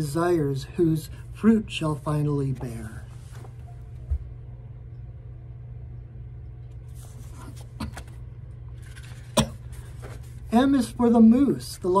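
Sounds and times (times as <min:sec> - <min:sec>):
low room hum: 0:00.0 - 0:12.0
soft paper rustling: 0:01.8 - 0:03.8, 0:06.8 - 0:11.0.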